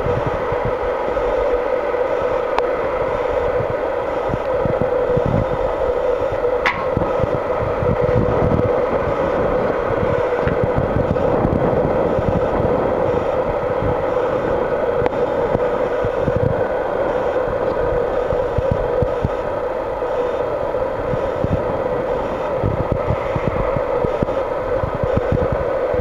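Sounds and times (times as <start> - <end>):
tractor diesel engine running: 0.0 - 26.0
wind buffeting microphone: 0.0 - 26.0.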